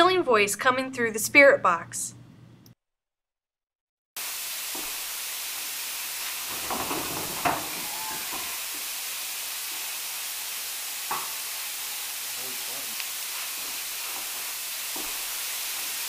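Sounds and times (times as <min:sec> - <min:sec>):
radio static hiss: 0:06.3 - 0:08.9, 0:11.1 - 0:15.8.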